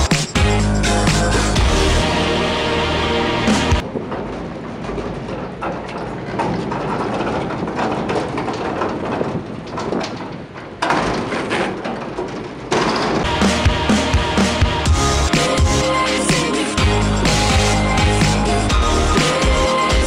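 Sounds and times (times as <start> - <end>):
longboard wheels rolling on asphalt: 3.8 - 13.3.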